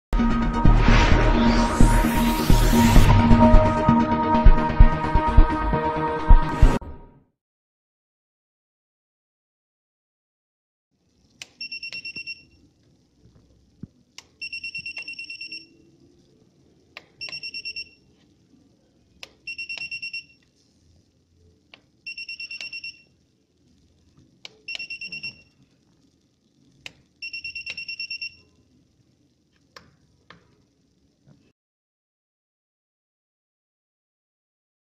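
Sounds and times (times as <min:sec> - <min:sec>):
high electronic beep: 0:00.6 - 0:03.6.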